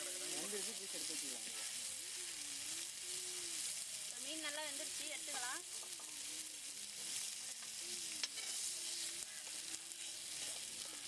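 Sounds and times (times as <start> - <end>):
fish sizzling in oil: 0.0 - 11.0
metal spatula lifting food: 7.0 - 11.0.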